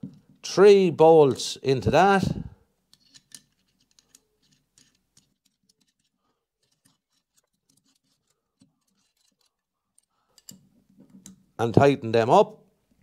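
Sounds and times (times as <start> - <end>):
small metal parts clicking: 2.9 - 11.4.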